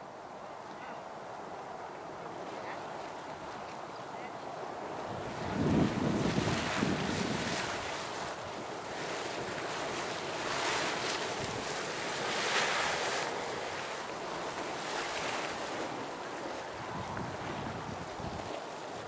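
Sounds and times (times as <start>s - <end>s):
boiling water splashing: 4.8s - 19.0s
wind buffeting microphone: 4.8s - 19.0s.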